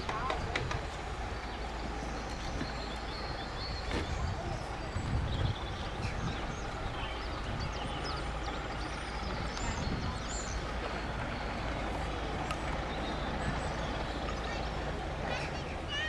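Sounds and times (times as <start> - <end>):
engine idling: 0.0 - 16.0.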